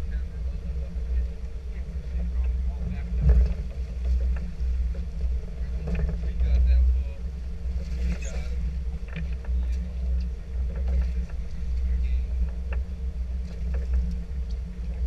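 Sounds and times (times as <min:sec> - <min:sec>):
boat engine idling: 0:00.0 - 0:15.0
faint constant hum: 0:00.0 - 0:15.0
small knocks and clicks: 0:09.0 - 0:15.0.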